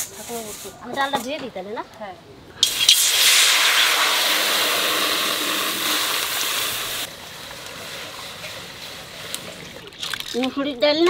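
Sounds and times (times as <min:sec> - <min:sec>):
water pouring: 0:02.6 - 0:07.1, 0:07.8 - 0:10.7
water hissing on hot metal: 0:02.6 - 0:10.4.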